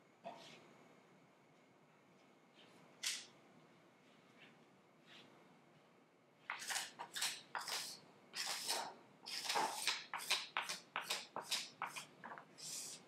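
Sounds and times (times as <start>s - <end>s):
steel scraper scraping wood: 6.5s - 10.3s.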